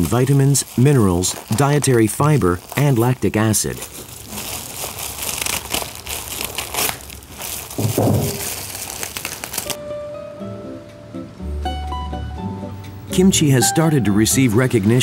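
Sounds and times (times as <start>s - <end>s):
wet cabbage crackling: 0.0s - 9.8s
music notes: 9.8s - 15.0s.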